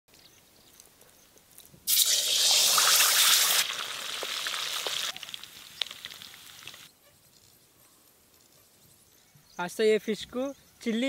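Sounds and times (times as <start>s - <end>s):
oil crackling and popping: 1.5s - 7.6s
fish deep-frying in hot oil: 1.9s - 6.9s.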